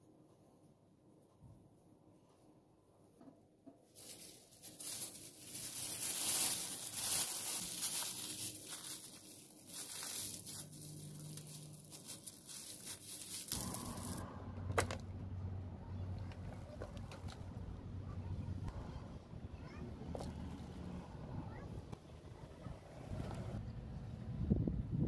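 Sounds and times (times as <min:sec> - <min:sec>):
paper tissue crinkling: 0:03.8 - 0:14.2
low hum: 0:13.5 - 0:19.4.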